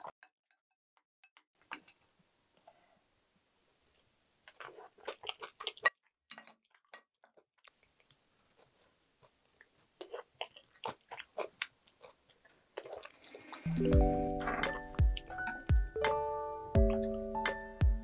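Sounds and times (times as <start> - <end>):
chewing noodles with mouth smacks: 3.9 - 15.9.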